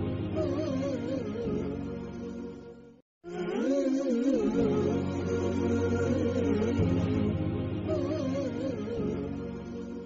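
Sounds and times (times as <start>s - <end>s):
wavering sung melody: 3.3s - 10.0s.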